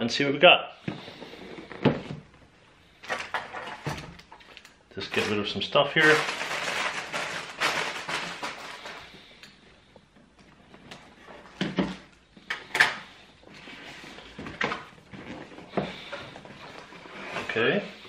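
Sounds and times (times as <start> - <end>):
packaging rustling scrapes: 5.0 - 9.4.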